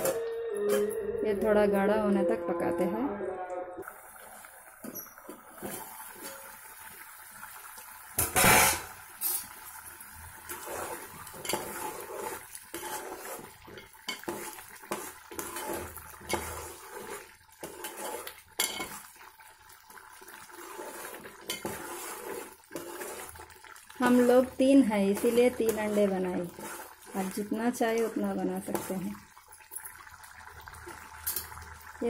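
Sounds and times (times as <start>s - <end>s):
metal spoon scraping a pot: 10.4s - 19.1s, 20.5s - 24.4s, 25.0s - 29.2s
metal pot lid clattering: 18.6s - 19.0s.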